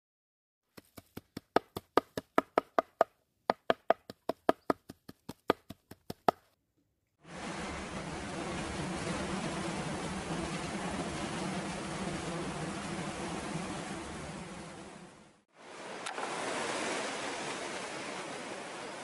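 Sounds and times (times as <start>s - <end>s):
river rushing over rocks: 15.6s - 19.0s.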